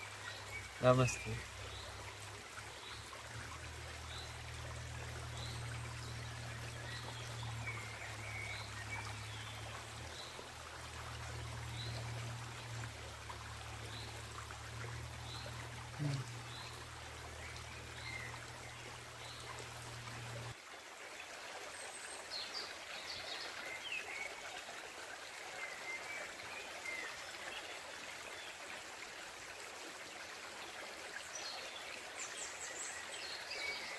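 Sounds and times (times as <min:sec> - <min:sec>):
birds chirping: 0:00.0 - 0:02.2, 0:13.5 - 0:20.6
creek flowing: 0:00.0 - 0:33.9.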